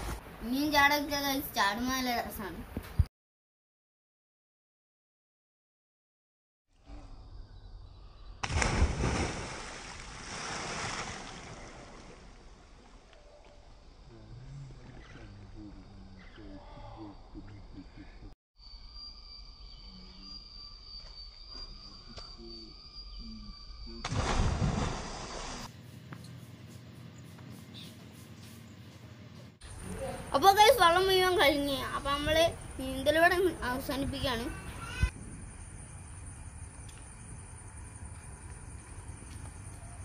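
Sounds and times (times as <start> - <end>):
loud splash: 8.4 - 12.4, 24.0 - 25.7
water churning: 8.5 - 12.6.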